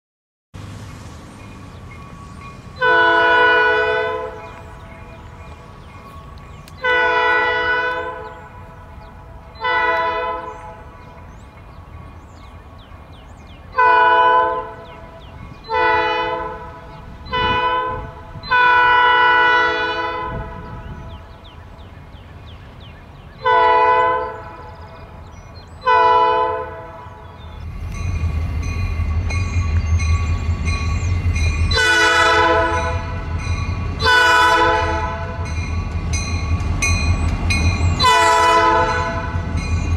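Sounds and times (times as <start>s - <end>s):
locomotive engine rumble: 0.6s - 39.9s
locomotive air horn blasts: 2.8s - 4.5s, 6.8s - 8.7s, 9.6s - 11.0s, 13.8s - 15.0s, 15.7s - 20.9s, 23.4s - 24.6s, 25.8s - 27.3s, 31.7s - 35.5s, 38.0s - 39.5s.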